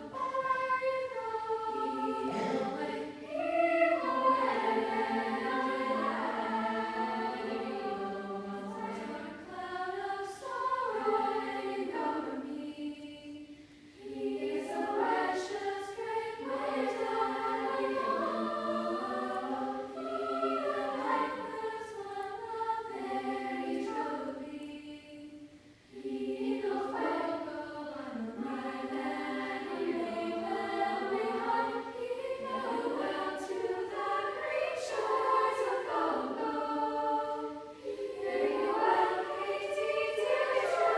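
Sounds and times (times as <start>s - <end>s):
girls' choir singing in harmony: 0.0s - 40.9s.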